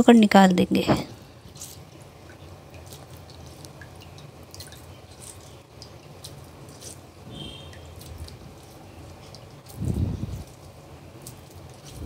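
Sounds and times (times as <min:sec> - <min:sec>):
wet squishing of cheese: 0:01.2 - 0:12.0
water dripping onto plate: 0:01.6 - 0:09.8.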